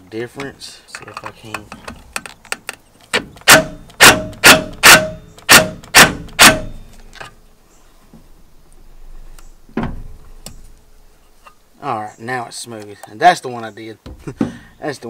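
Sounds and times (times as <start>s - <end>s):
sharp metallic bangs: 3.2s - 7.1s.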